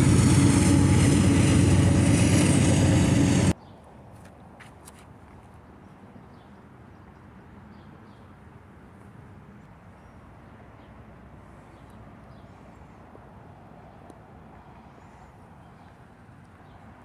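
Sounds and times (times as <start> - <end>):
steady low rumble: 0.0 - 3.6.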